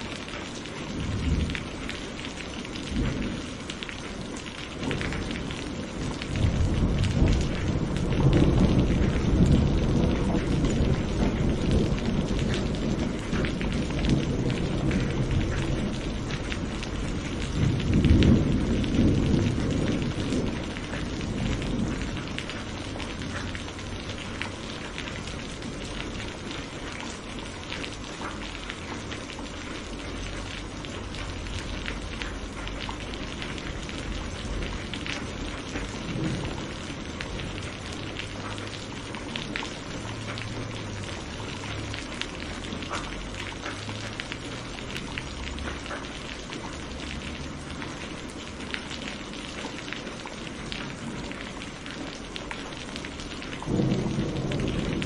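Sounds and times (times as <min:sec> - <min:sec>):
steady rain falling: 0:00.0 - 0:55.0
low rolling thunder: 0:00.8 - 0:27.8, 0:28.7 - 0:45.8, 0:49.0 - 0:55.0.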